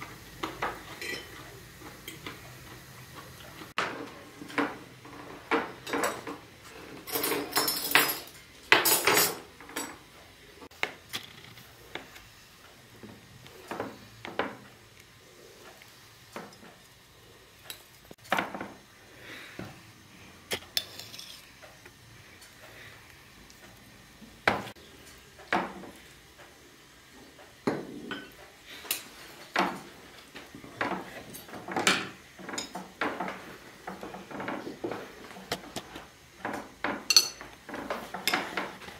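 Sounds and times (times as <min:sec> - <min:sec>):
knife clinking on china: 0:01.0 - 0:01.3, 0:37.1 - 0:37.4
fork clinking on plate: 0:37.1 - 0:37.4.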